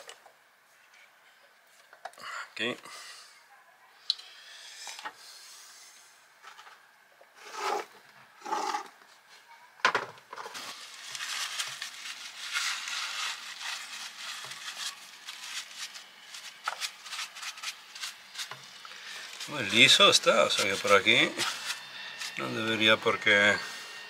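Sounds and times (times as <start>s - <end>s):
scraping engine part surface: 7.4s - 8.9s, 10.4s - 23.8s.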